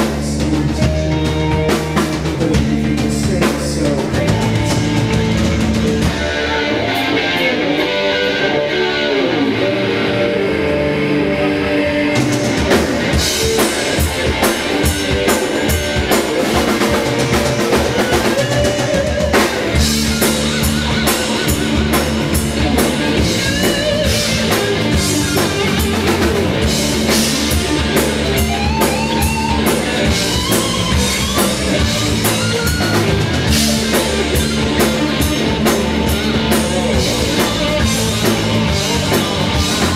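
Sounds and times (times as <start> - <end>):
rock band playing: 0.0 - 39.9
drum beat with crashing cymbals: 12.2 - 39.9.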